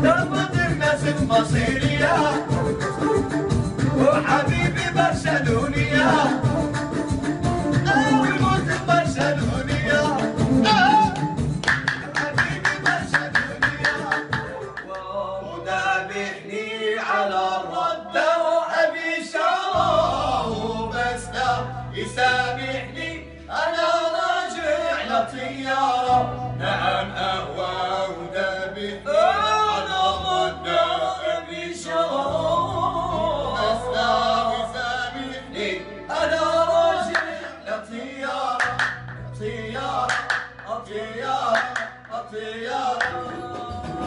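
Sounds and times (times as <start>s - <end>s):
men singing together: 0.0s - 44.0s
electronic keyboard notes: 1.6s - 14.8s.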